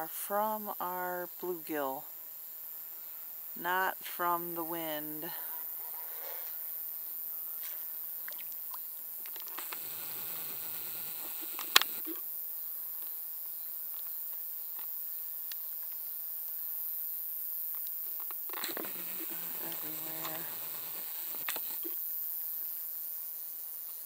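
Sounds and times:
steady high hiss: 0.0s - 24.0s
faint ticks: 7.6s - 12.2s, 13.0s - 16.1s, 17.7s - 22.0s
sharp click: 11.5s - 12.0s.

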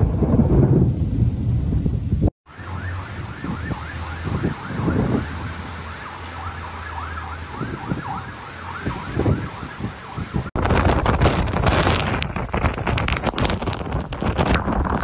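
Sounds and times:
wind rumbling on microphone: 0.0s - 15.0s
siren yelping: 2.5s - 10.5s.

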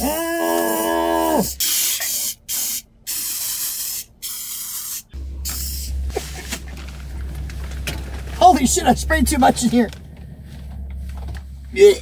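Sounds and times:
person shouting: 0.0s - 1.6s, 11.8s - 12.0s
aerosol spray hissing: 1.6s - 6.4s.

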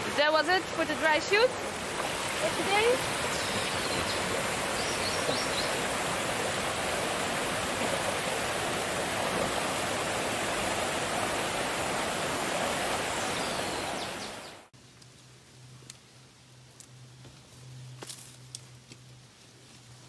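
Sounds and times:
river rushing: 0.0s - 14.7s.

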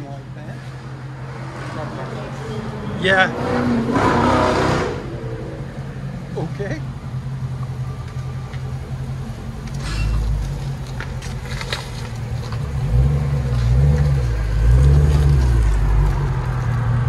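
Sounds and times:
car exhaust rumbling: 0.7s - 17.0s.

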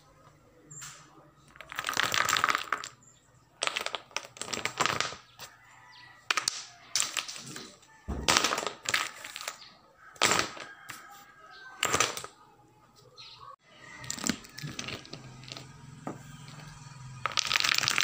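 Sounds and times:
wooden dominoes clacking: 1.5s - 3.0s, 3.6s - 5.4s, 6.3s - 9.6s, 10.2s - 10.7s, 11.8s - 12.3s, 14.0s - 15.8s, 17.2s - 18.0s.

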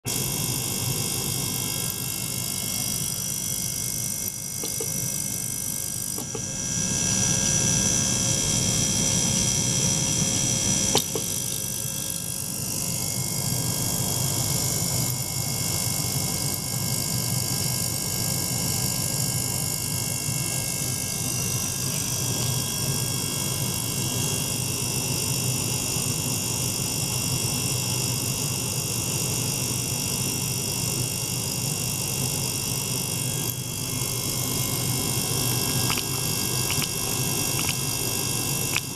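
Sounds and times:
pump hum and hiss: 0.0s - 38.9s
click: 4.6s - 5.0s, 11.0s - 11.3s.

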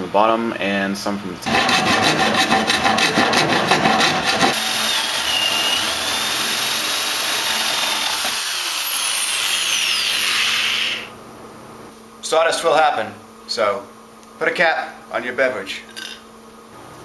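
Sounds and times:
screwdriver scraping particle board: 1.5s - 8.9s
cordless drill whining: 4.5s - 11.1s.

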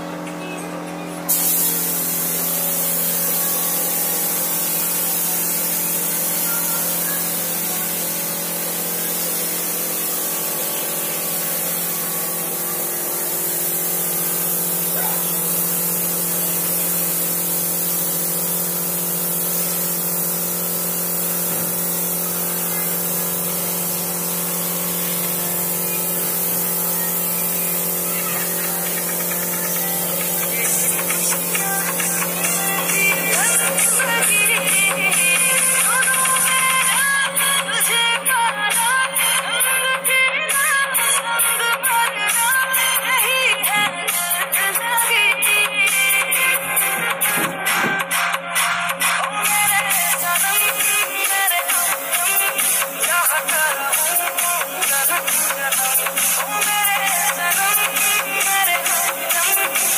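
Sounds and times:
spray gun compressed air hiss: 1.3s - 59.9s
steady hum: 19.6s - 59.9s.

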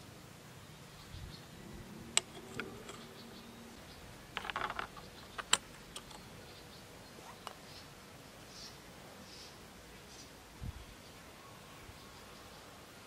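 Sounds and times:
plastic and metal parts clicking: 4.4s - 6.2s.

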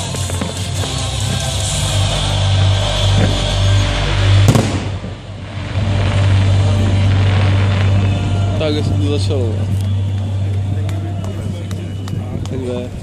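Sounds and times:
music: 0.0s - 13.0s
firework bang: 4.2s - 8.5s.

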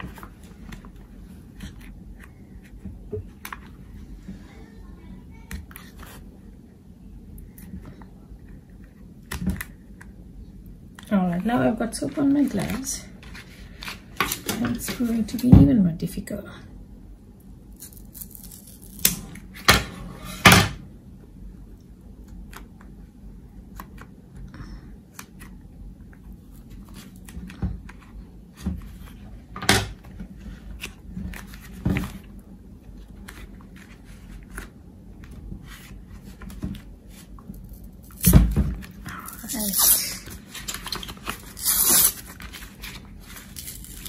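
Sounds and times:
cardboard and foil rustling: 35.6s - 44.0s.

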